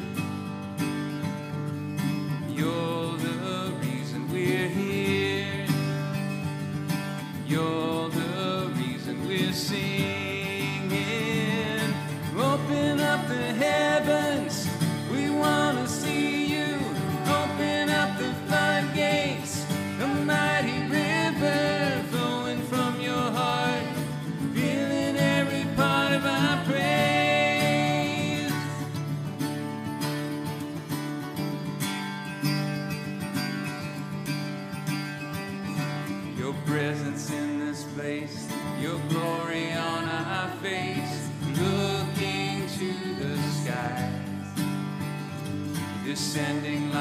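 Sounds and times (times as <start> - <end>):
acoustic guitars strumming: 0.0 - 47.0.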